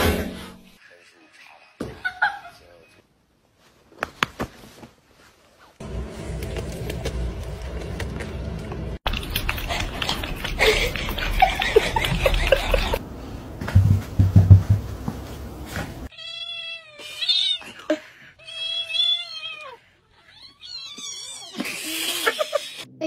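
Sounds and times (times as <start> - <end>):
low thumps: 12.1 - 15.5.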